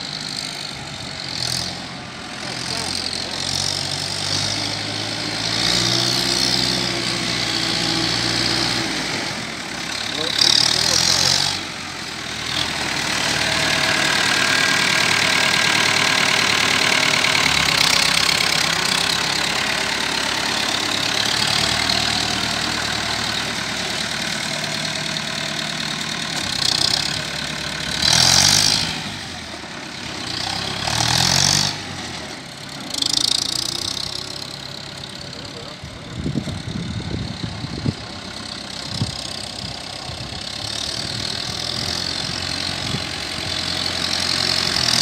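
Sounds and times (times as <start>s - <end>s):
tractor diesel engine running: 0.0s - 45.0s.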